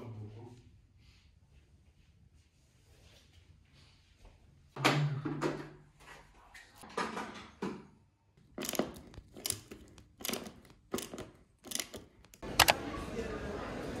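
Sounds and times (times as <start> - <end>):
screwdriver scraping clicks: 8.6 - 12.8.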